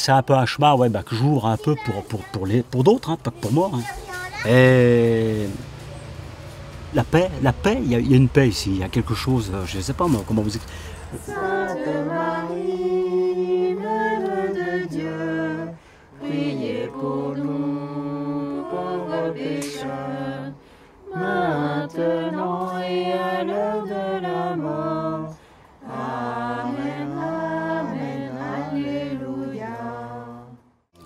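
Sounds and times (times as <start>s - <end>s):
group singing a hymn a cappella: 9.2s - 30.8s.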